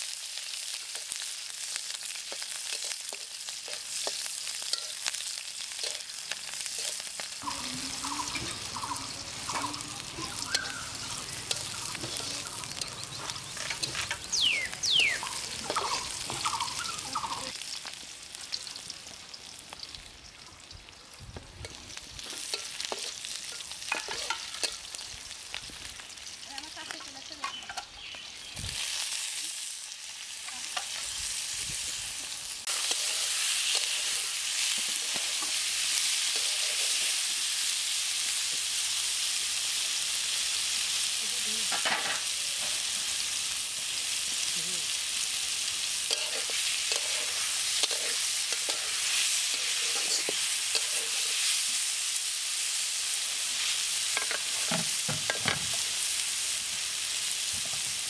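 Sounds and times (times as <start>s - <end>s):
food sizzling in hot oil: 0.0s - 58.0s
spatula scraping a pan: 2.5s - 5.1s, 5.7s - 7.1s, 21.6s - 24.8s, 32.7s - 37.2s, 46.0s - 51.7s.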